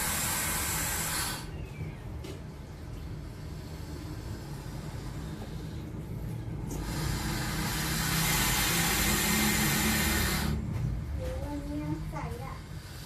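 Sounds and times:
snake hissing: 0:00.0 - 0:01.6, 0:03.1 - 0:10.7, 0:12.6 - 0:13.0.

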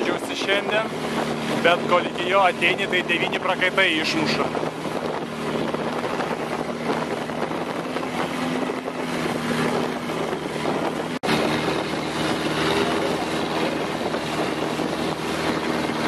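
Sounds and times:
boat engine running: 0:00.0 - 0:16.0
wind on microphone: 0:00.0 - 0:16.0.

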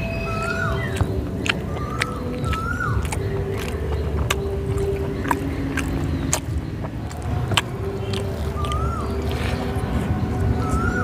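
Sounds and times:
steady low rumble: 0:00.0 - 0:11.0
wet clicks of eating by hand: 0:00.0 - 0:11.0.

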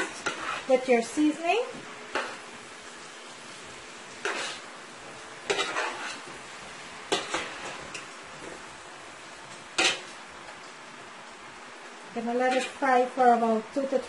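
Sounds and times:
faint frying sizzle: 0:00.0 - 0:14.0.

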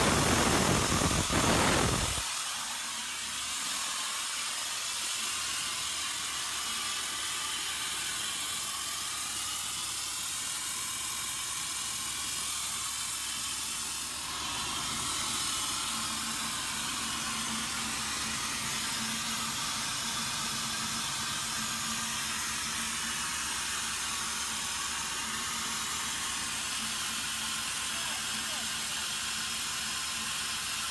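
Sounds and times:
compressed air rushing hiss: 0:00.0 - 0:10.8.

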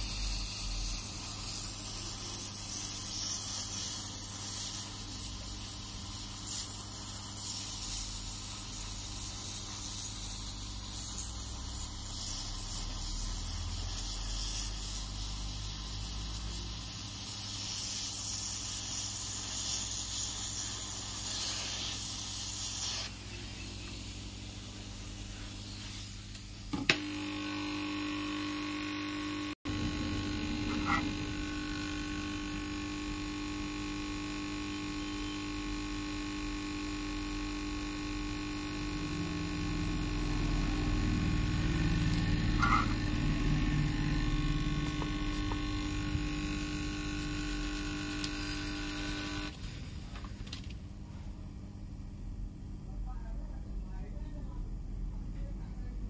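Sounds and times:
machine hum: 0:26.4 - 0:51.1.

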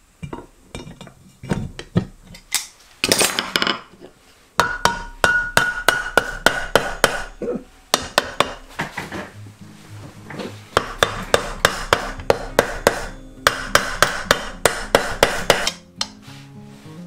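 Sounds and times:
hammer blows on metal: 0:10.7 - 0:16.2.

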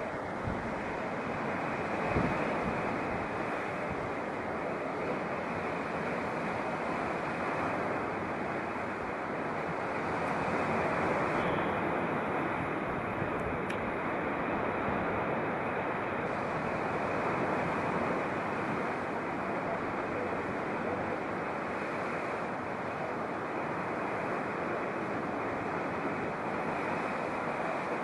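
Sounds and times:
waves breaking on rocky shore: 0:00.0 - 0:28.0.

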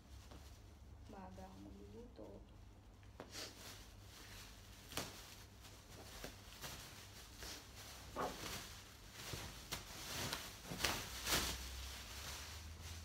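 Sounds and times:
plastic bag rustling: 0:03.3 - 0:13.0.

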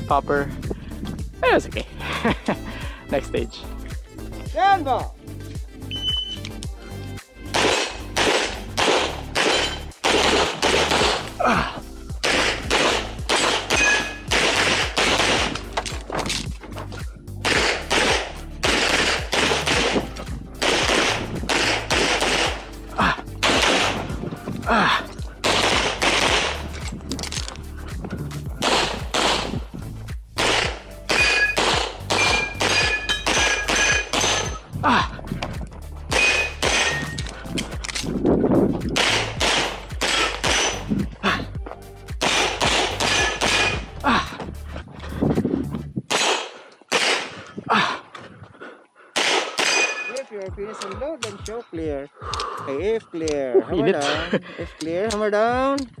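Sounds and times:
background music: 0:00.0 - 0:48.0, 0:49.1 - 0:56.0
pistol shots: 0:07.5 - 0:11.3, 0:12.2 - 0:16.4, 0:17.4 - 0:22.7, 0:23.4 - 0:24.2, 0:25.4 - 0:27.4, 0:28.6 - 0:29.6, 0:30.4 - 0:34.6, 0:36.1 - 0:37.3, 0:39.0 - 0:40.9, 0:42.2 - 0:43.9, 0:46.1 - 0:47.4, 0:49.2 - 0:50.3.

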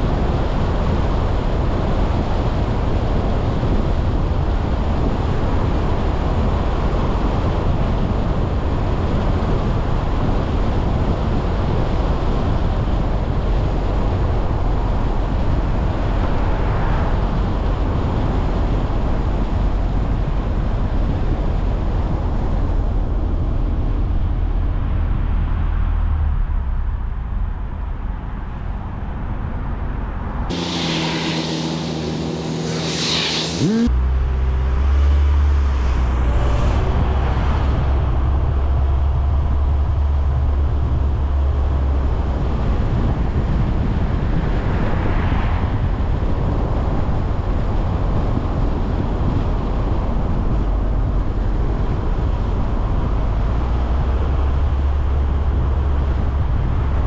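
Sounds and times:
car road noise: 0:00.0 - 0:57.0.

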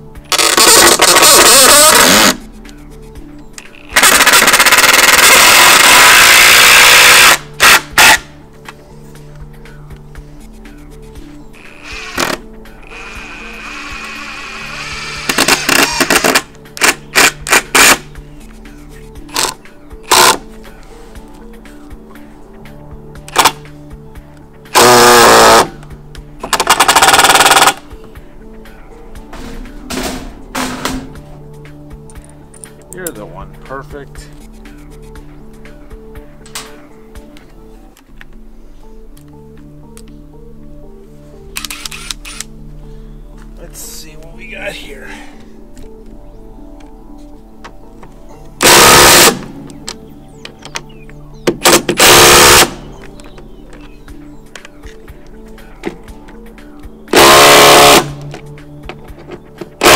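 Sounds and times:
background music: 0:00.0 - 0:59.9
impact driver driving into wood: 0:15.0 - 0:18.0.

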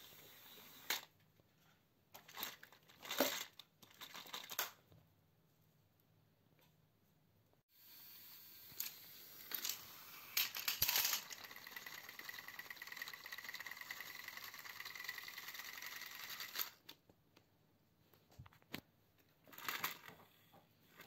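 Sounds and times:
toy train motor whirring: 0:00.0 - 0:01.1, 0:07.7 - 0:16.8
toy train clicks and rattling: 0:00.4 - 0:01.1, 0:02.2 - 0:04.8, 0:07.9 - 0:16.8, 0:19.5 - 0:21.0.

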